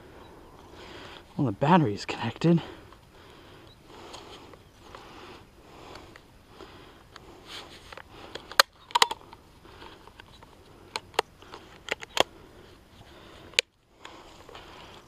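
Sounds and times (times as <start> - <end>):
sharp clicks and snaps: 10.1 - 12.3.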